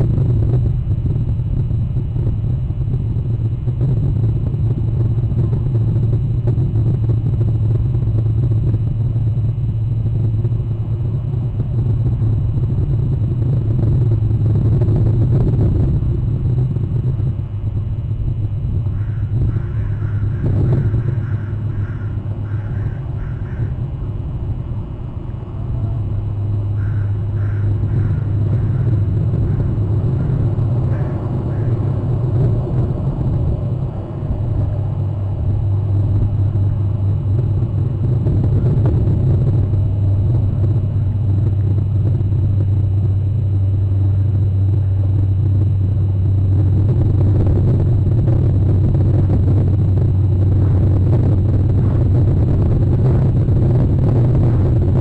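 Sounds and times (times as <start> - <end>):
steady low rumble: 0.0 - 55.0.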